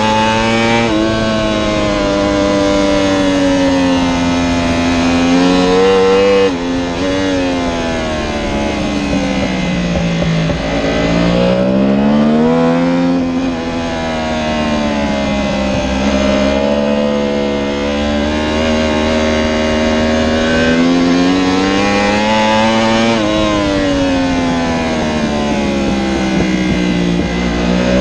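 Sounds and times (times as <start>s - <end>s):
motorcycle engine accelerating: 0.0s - 28.0s
wind rush: 0.8s - 16.6s.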